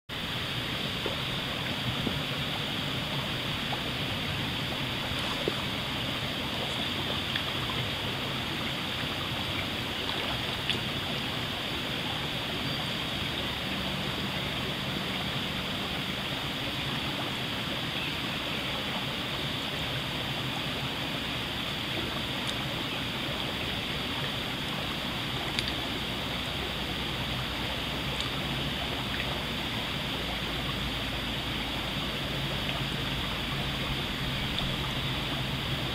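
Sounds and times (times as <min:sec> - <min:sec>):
stream flowing: 0:00.1 - 0:35.9
faint ticks: 0:25.5 - 0:25.8.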